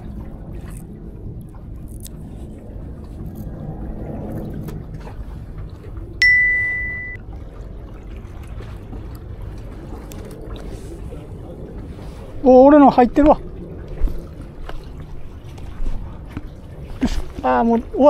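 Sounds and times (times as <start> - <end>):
bright ding sound effect: 6.2 - 7.2.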